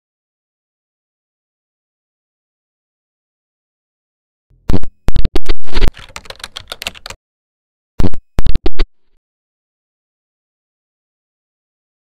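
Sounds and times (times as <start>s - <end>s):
keyboard keystroke clicks: 5.8s - 7.2s.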